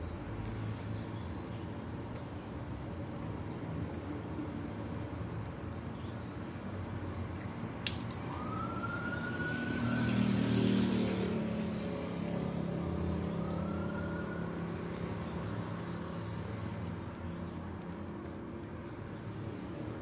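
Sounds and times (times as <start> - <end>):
distant road traffic: 0.0 - 20.0
small clicks: 7.8 - 9.0, 16.8 - 19.6
faint siren rising in pitch: 8.2 - 17.1
vehicle passing: 8.4 - 17.7.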